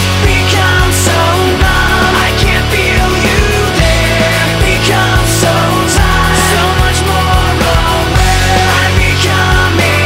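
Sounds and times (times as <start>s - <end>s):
bass line: 0.0s - 10.0s
steady drum beat: 0.0s - 10.0s.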